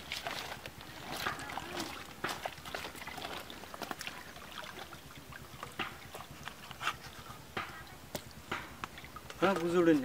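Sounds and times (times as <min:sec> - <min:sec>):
small water splashes: 0:00.0 - 0:10.0
light knocks of fish and bowl: 0:05.6 - 0:06.2.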